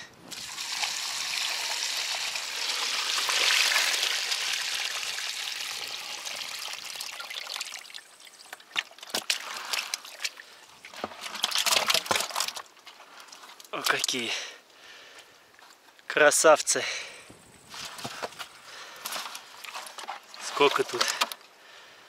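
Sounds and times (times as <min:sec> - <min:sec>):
water pouring and trickling: 0:00.3 - 0:14.1.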